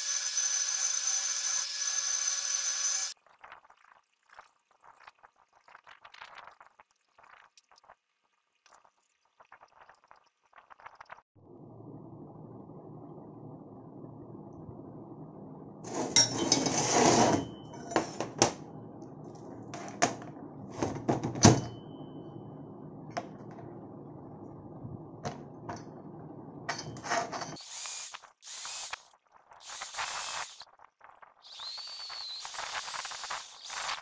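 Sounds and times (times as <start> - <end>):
drill bit cutting steel: 0.0 - 3.1, 27.6 - 29.0, 29.6 - 30.6, 31.4 - 34.0
low hum: 11.4 - 27.6
steel plates clinking: 15.9 - 18.2.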